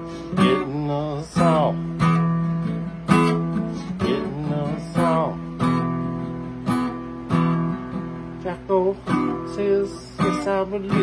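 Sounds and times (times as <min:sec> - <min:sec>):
acoustic guitar strummed chords: 0:00.0 - 0:11.0.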